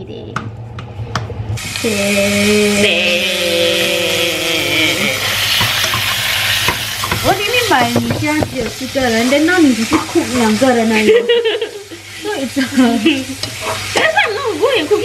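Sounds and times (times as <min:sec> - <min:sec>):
food sizzling in a pan: 0:01.6 - 0:15.0
woman speaking: 0:01.8 - 0:05.2, 0:07.2 - 0:11.3, 0:12.2 - 0:13.4.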